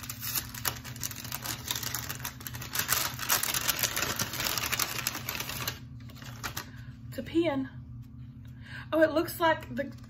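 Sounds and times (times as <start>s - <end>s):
packaging crinkling: 0.0s - 6.8s.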